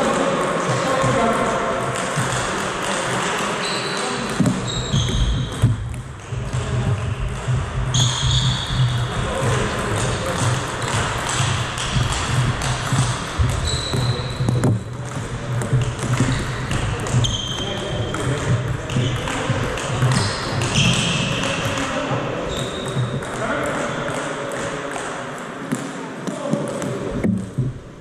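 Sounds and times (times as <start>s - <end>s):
sports hall background noise: 0.0s - 28.0s
short high squeaks: 3.6s - 5.3s.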